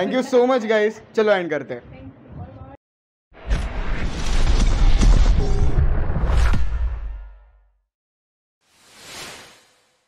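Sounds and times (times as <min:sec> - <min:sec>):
whoosh and hit effect: 0:03.4 - 0:07.3, 0:08.7 - 0:10.0.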